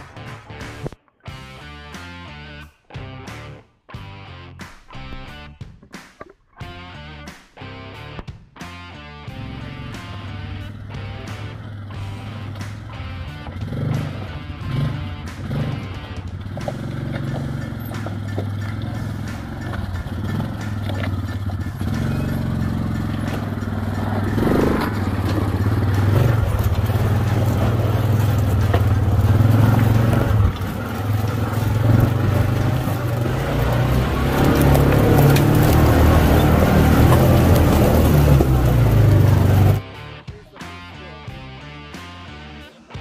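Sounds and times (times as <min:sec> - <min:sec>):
utility vehicle engine running: 0:09.4 - 0:39.8
tyres crunching on rocks: 0:13.6 - 0:39.8.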